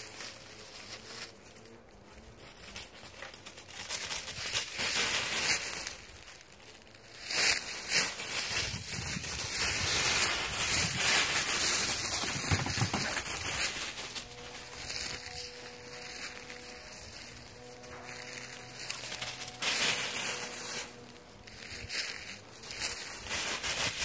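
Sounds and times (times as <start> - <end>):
footsteps crunching dry leaves: 0.0 - 24.0.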